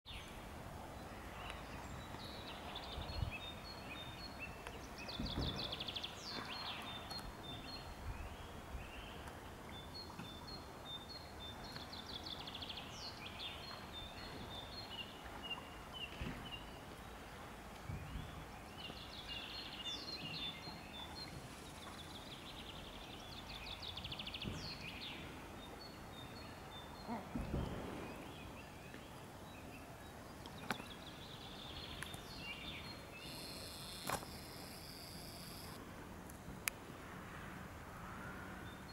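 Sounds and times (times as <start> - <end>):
small songbirds singing: 18.1 - 35.8.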